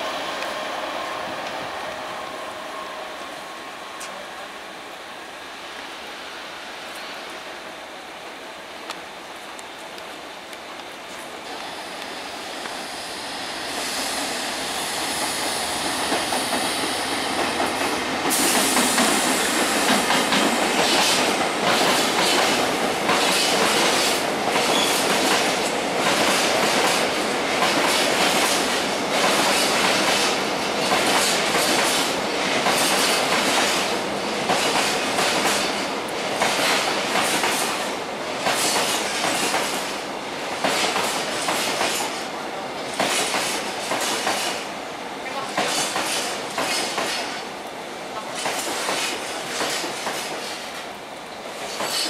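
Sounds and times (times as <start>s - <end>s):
freight train rolling past: 0.0s - 52.0s
wheels clacking over rail joints: 48.2s - 50.9s.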